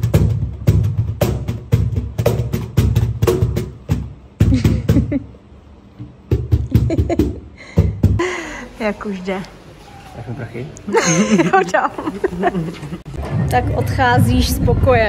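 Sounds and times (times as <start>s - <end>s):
cajon played by hand: 0.0s - 5.2s, 6.0s - 8.2s.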